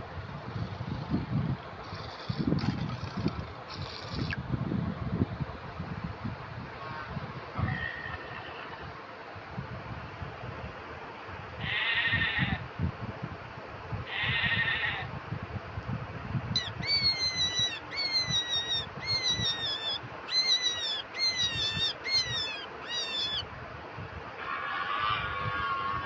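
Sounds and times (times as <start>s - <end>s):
short high squeaking calls: 16.6s - 23.4s.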